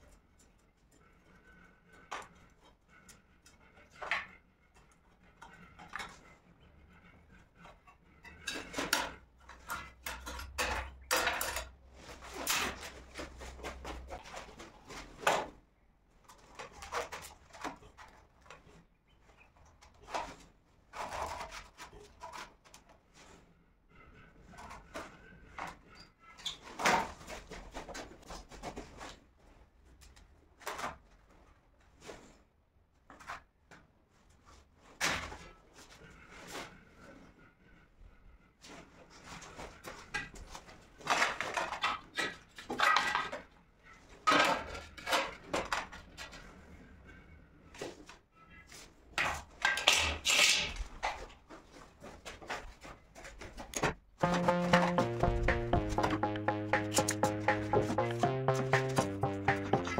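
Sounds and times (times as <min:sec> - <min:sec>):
hand tools and tile knocking: 0:07.7 - 0:14.2.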